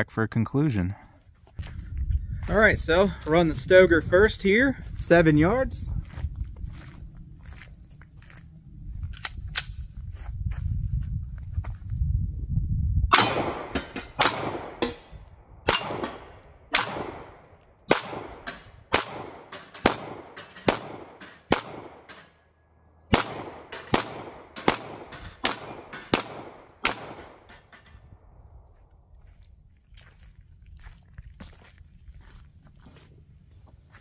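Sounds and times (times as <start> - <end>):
pistol shots: 13.1 - 22.4, 23.1 - 27.7
steel plates clanging: 18.5 - 22.4.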